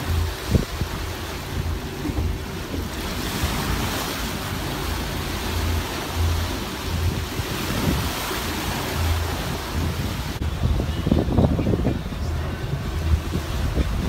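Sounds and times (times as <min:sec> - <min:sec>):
choppy sea splashing: 0:00.0 - 0:14.0
wind buffeting microphone: 0:00.0 - 0:14.0.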